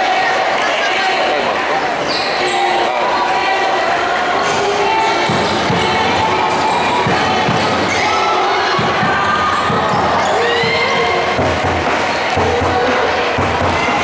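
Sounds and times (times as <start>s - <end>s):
crowd voices: 0.0s - 14.0s
basketball bouncing: 5.2s - 8.0s.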